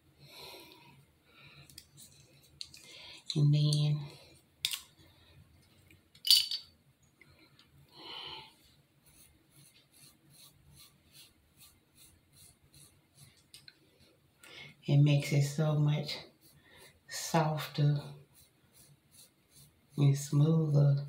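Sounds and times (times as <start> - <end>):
razor scraping strokes: 9.0 - 13.5, 16.3 - 20.4.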